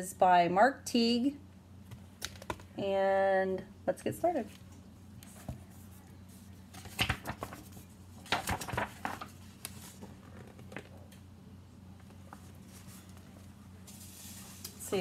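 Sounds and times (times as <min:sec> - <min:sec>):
low steady hum: 0:00.0 - 0:15.0
book pages turning: 0:05.2 - 0:11.1, 0:12.0 - 0:14.8.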